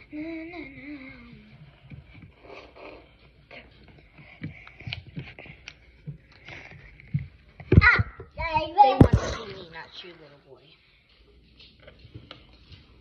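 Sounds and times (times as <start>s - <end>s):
girl humming: 0.0s - 1.9s.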